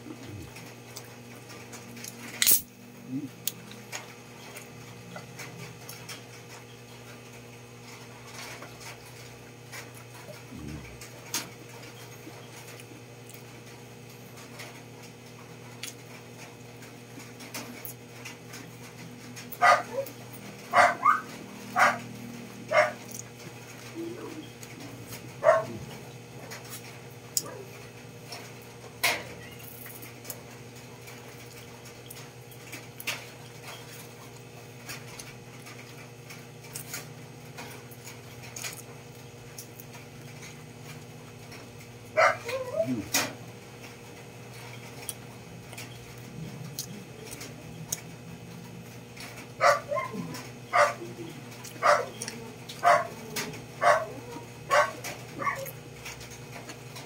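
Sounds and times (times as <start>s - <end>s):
steady low hum: 0.0s - 57.0s
dog barking and yipping: 19.5s - 22.1s, 22.7s - 23.0s, 25.4s - 25.9s, 42.2s - 43.0s, 49.6s - 55.8s.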